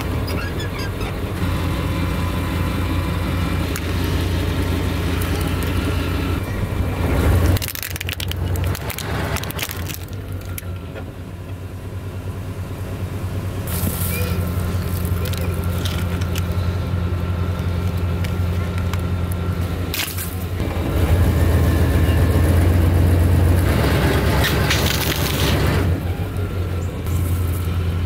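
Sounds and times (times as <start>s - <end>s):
truck engine idling: 0.0s - 28.0s
plastic toy cracking and crunching: 7.5s - 10.7s, 14.8s - 16.6s, 24.5s - 25.6s.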